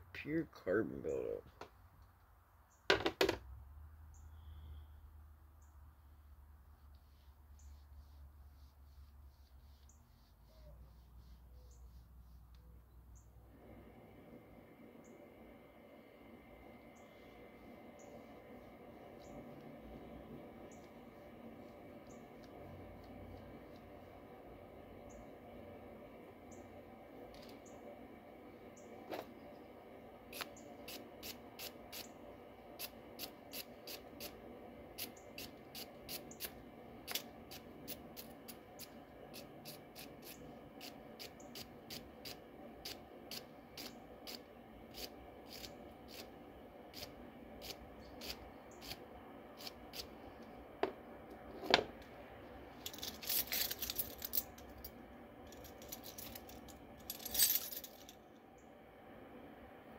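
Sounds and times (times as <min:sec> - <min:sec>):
metal tools clinking and rattling: 0:52.9 - 0:54.6, 0:55.6 - 0:58.2.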